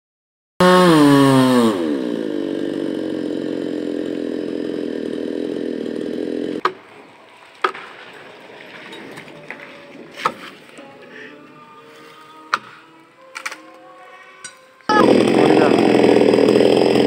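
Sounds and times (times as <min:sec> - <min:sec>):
chainsaw engine running: 0:00.6 - 0:11.6, 0:14.8 - 0:17.0.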